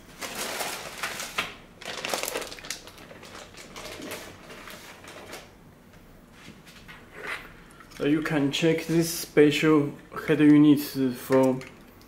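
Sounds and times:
plastic wrapping crinkling: 0.0 - 5.5.

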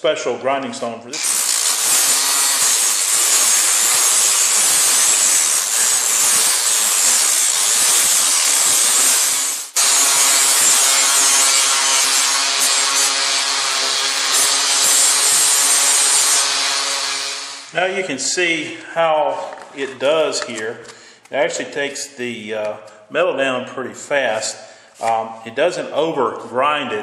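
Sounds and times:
angle grinder grinding metal: 1.2 - 17.8.

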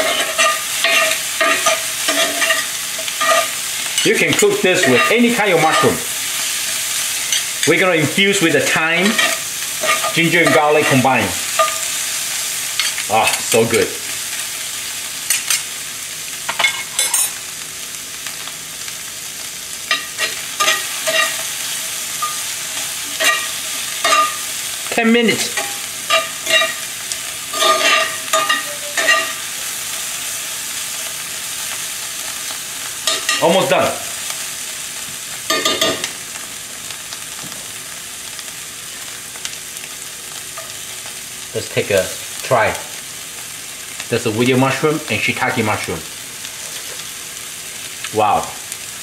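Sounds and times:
metal spatula scraping pan: 0.0 - 7.8, 8.7 - 12.0, 19.9 - 21.5, 22.2 - 24.4, 25.4 - 26.9, 27.5 - 29.4
utensil stirring in skillet: 0.0 - 14.3, 19.8 - 34.6, 46.4 - 48.0
vegetables sizzling in a skillet: 0.0 - 49.0.

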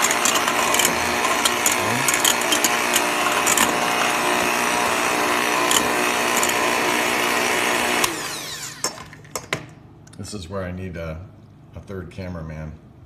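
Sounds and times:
electric hand mixer whipping eggs: 0.0 - 9.2.

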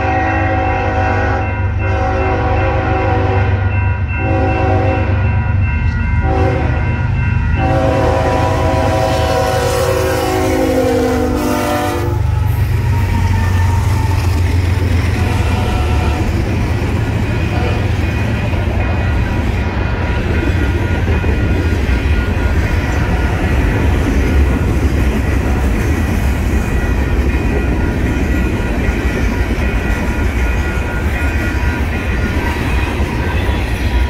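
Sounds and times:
locomotive air horn blasts: 0.0 - 5.2, 6.2 - 6.9, 7.6 - 12.5, 15.1 - 16.5
freight train rumbling past: 0.0 - 34.0.

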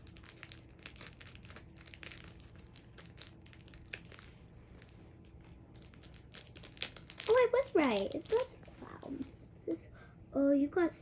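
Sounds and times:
plastic packet crinkling: 0.0 - 9.4
scissors cutting plastic: 6.4 - 8.6.

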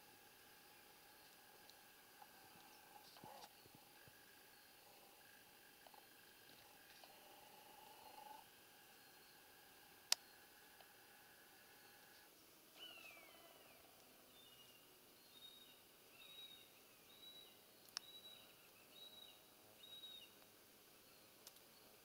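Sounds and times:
faint bird calls: 10.2 - 20.4.

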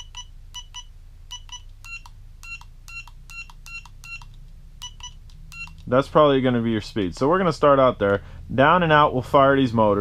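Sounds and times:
short electronic beeps: 0.0 - 5.8.

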